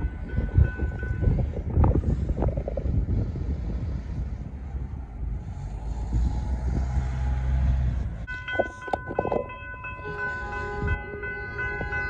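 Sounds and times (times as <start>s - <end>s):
level crossing warning bells: 0.0s - 1.8s, 8.2s - 12.0s
low rumble: 0.0s - 10.0s.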